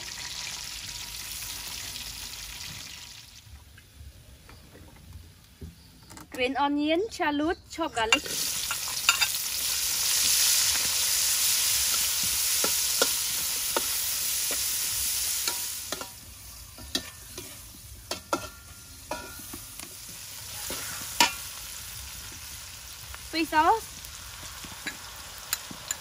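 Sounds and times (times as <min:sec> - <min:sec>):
food sizzling in a wok: 0:00.0 - 0:03.5, 0:08.1 - 0:26.0
metal spatula scraping a pan: 0:15.3 - 0:19.7, 0:20.4 - 0:21.6.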